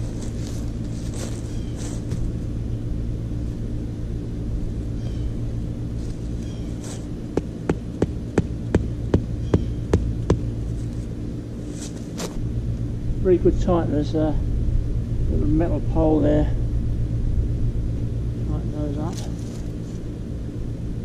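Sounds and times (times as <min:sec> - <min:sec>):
steady low hum: 0:00.0 - 0:21.0
tent peg being hammered: 0:07.3 - 0:10.5.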